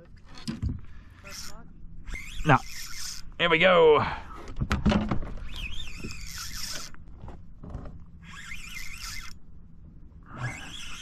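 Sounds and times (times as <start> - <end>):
fishing reel whirring: 1.1 - 3.4, 5.4 - 7.0, 8.2 - 9.5, 10.3 - 11.0.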